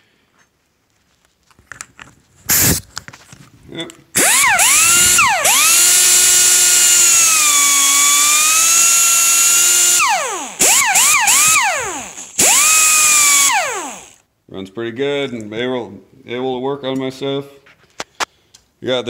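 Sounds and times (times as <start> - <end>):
air die grinder whining: 2.5 - 2.8, 4.2 - 14.2.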